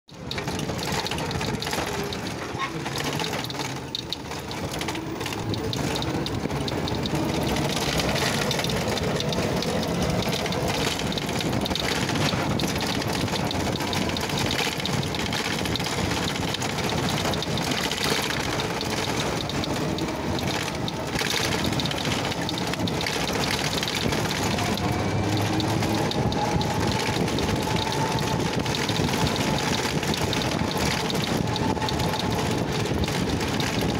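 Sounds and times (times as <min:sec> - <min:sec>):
vehicle rushing noise: 0:00.2 - 0:33.9
wind on microphone: 0:18.5 - 0:33.9.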